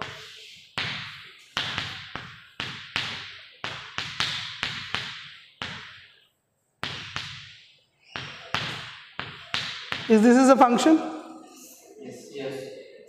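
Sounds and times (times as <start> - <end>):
chalk tapping on a chalkboard: 0.0 - 6.2, 6.8 - 10.2.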